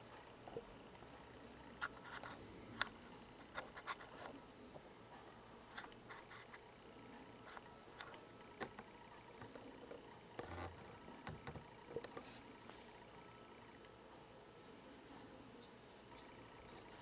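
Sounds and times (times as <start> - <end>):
faint irregular clicks: 0.0 - 14.8.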